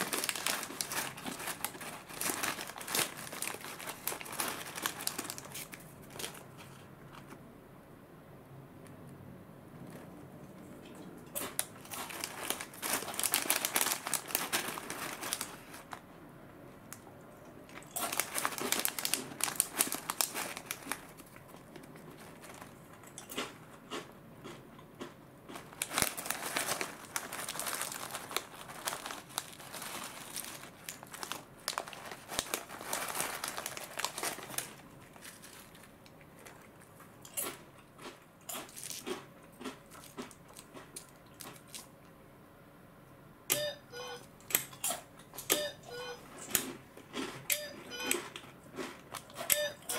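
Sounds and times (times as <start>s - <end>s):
foil snack pouch crinkling: 0.0s - 6.8s, 11.4s - 16.0s, 17.7s - 23.6s, 25.5s - 36.7s.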